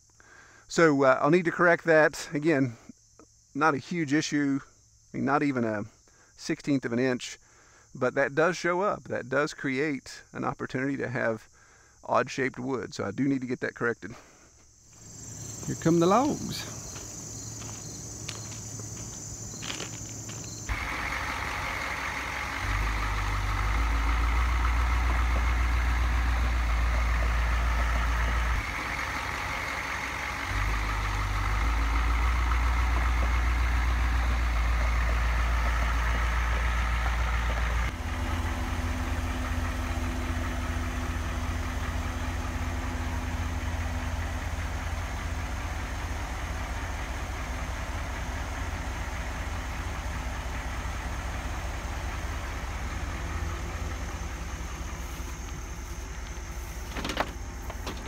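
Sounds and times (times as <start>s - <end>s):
truck engine running: 14.9s - 58.0s.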